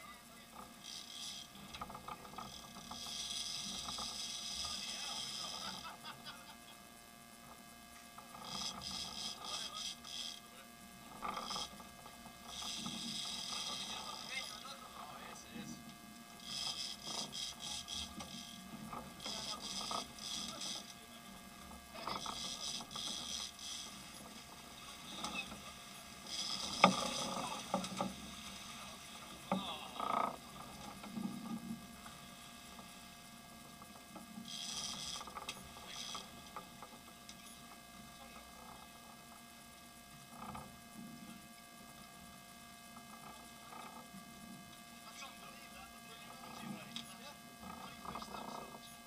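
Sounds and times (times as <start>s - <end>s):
faint steady hum: 0.0s - 49.0s
fishing reel drag clicker buzzing: 0.5s - 6.1s, 7.4s - 14.5s, 16.1s - 37.7s.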